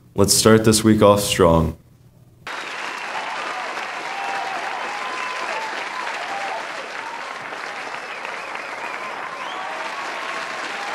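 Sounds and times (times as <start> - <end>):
cheering whoops: 2.5 - 10.9
crowd applauding: 2.5 - 10.9.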